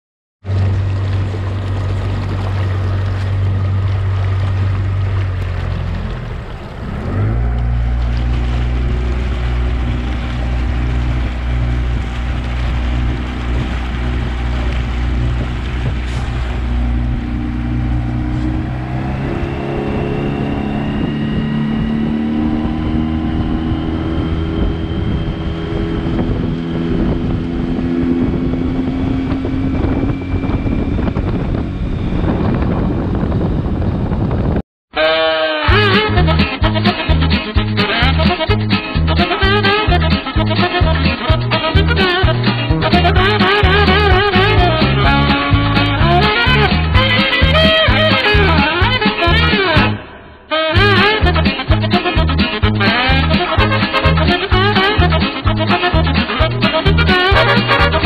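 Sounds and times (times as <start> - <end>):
wake splashing against hull: 0.4 - 20.6
outboard motor running: 0.4 - 34.6, 35.7 - 50.0, 50.8 - 58.0.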